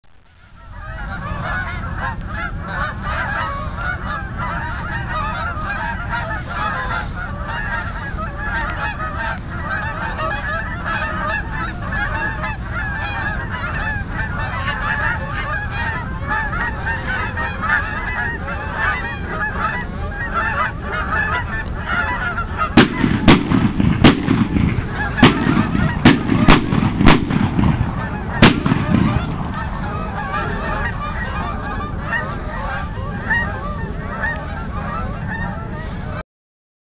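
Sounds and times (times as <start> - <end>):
geese honking: 0.2 - 36.2
shotgun shots: 22.8 - 29.6.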